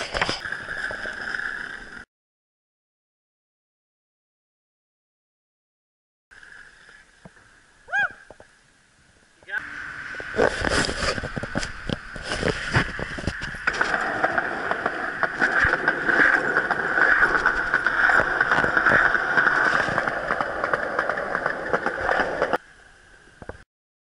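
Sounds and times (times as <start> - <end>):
skateboard wheels rolling on concrete: 0.0 - 2.1, 6.3 - 23.6
skateboard clattering: 10.2 - 22.6.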